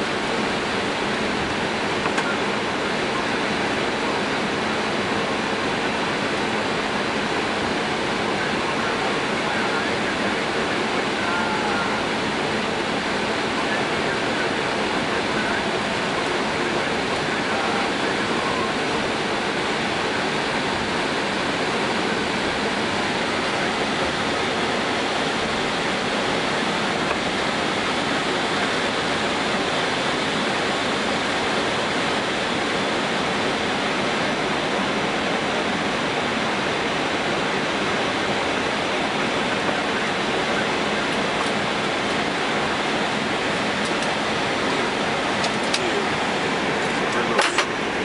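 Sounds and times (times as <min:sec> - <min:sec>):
aircraft cockpit rushing noise: 0:00.0 - 0:48.0.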